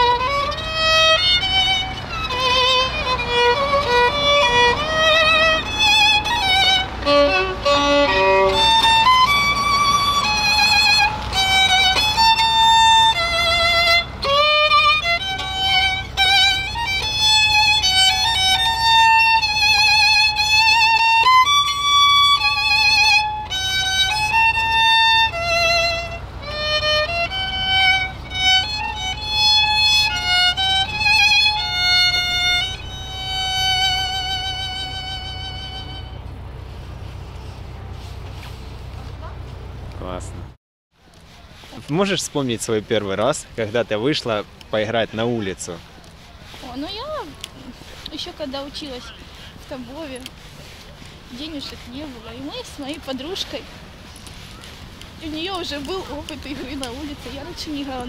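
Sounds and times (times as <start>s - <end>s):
solo violin melody: 0.0s - 37.0s.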